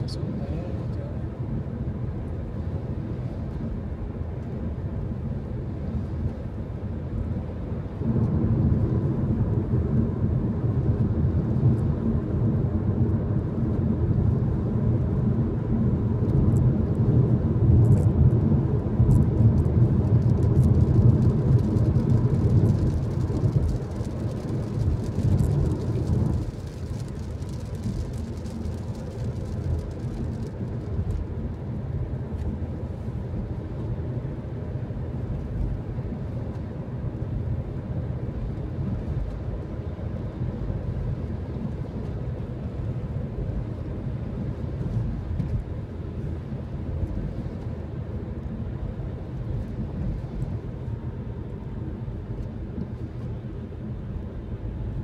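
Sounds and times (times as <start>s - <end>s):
car engine rumble: 0.0s - 55.0s
tyres on wet road: 17.9s - 33.9s.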